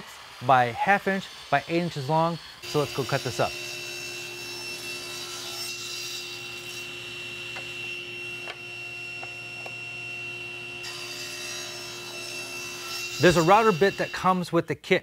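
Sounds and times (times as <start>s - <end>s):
table saw running with hum and whine: 0.0s - 14.3s.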